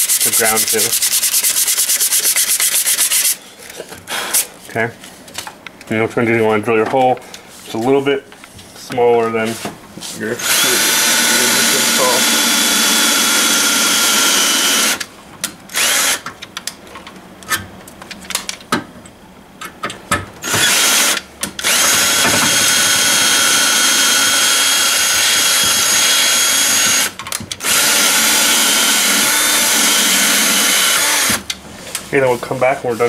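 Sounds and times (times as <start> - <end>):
cordless drill whining: 10.4 - 15.1, 15.7 - 16.2, 20.4 - 31.4.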